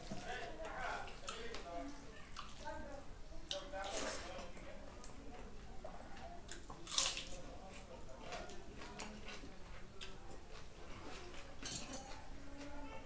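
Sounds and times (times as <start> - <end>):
wet chewing: 6.2 - 12.8.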